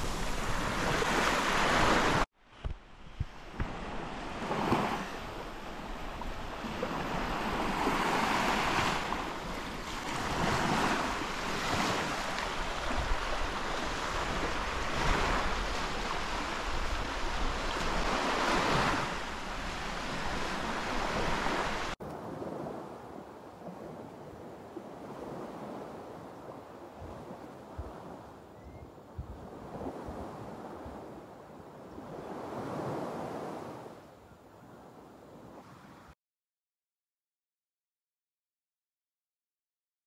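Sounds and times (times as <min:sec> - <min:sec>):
sea waves breaking on beach: 0:00.0 - 0:02.3, 0:03.2 - 0:28.4, 0:29.3 - 0:31.3, 0:31.9 - 0:34.0.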